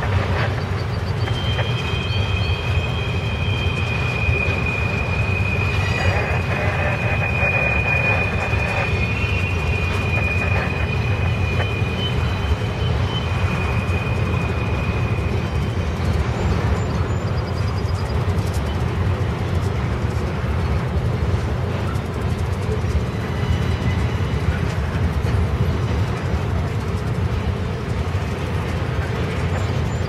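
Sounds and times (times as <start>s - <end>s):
high wheel squeal: 0.0s - 18.8s
steel wheels rumbling on rail: 0.0s - 30.0s.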